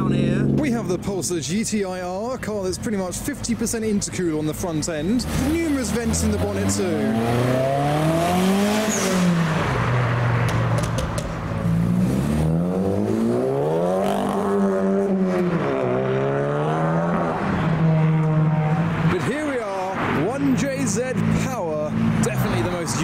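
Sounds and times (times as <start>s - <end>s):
car engines accelerating: 0.0s - 23.0s.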